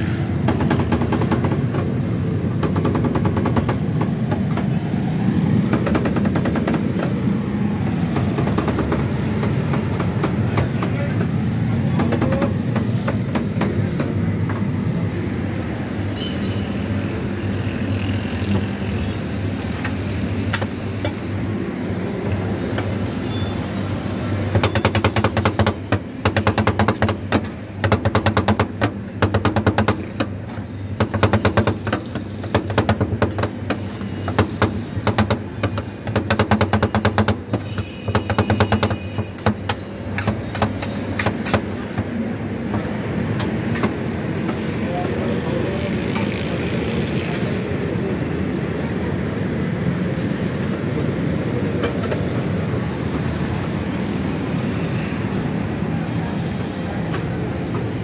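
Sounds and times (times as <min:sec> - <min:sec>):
spatulas chopping on steel pan: 0:24.6 - 0:30.4, 0:31.0 - 0:42.1.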